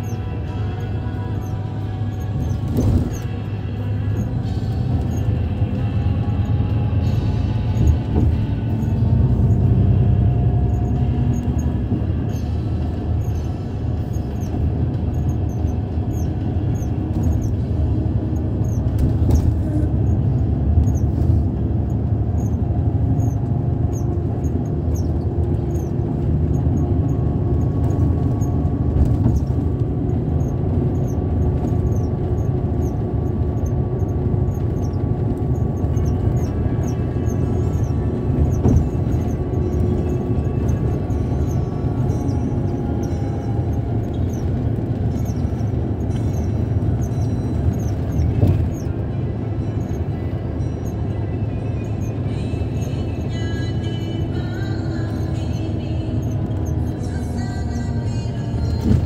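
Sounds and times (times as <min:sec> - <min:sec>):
road and engine rumble: 0:00.0 - 0:59.0
faint high squeaks: 0:23.2 - 0:27.2, 0:33.6 - 0:59.0.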